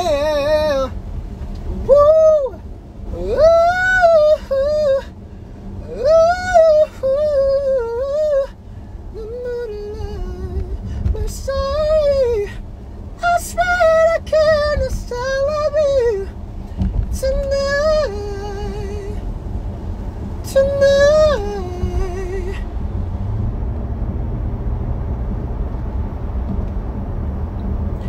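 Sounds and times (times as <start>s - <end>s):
man singing unaccompanied: 0.0s - 1.0s, 1.8s - 5.1s, 5.8s - 8.6s, 9.2s - 12.6s, 13.2s - 16.4s, 17.1s - 19.2s, 20.4s - 22.6s
low rumble: 0.0s - 28.0s.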